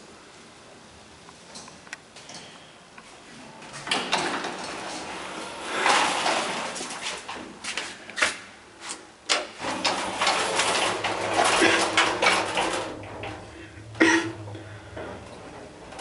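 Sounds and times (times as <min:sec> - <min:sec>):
low mechanical hum: 0:00.0 - 0:16.0
lift doors clicking: 0:03.7 - 0:08.4, 0:09.2 - 0:16.0
door mechanism rattling: 0:09.3 - 0:16.0.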